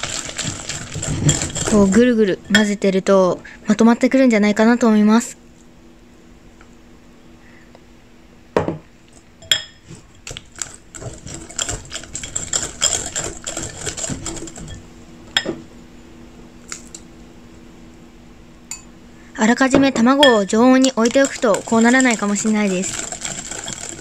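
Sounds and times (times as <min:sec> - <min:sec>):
whisk clicking against bowl: 0:10.3 - 0:14.8, 0:20.2 - 0:24.0.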